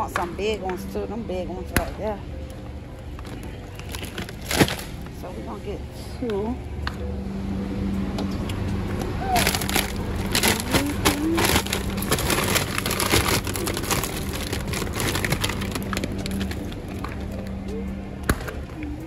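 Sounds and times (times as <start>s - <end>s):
low hum: 0.0s - 19.0s
plastic bags crinkling: 3.2s - 5.0s, 9.3s - 17.3s.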